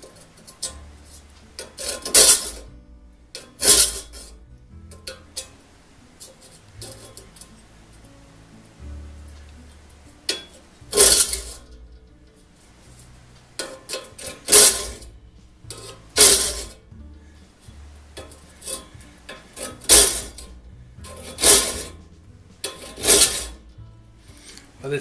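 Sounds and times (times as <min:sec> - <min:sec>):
file rasping on saw teeth: 0:21.1 - 0:22.0.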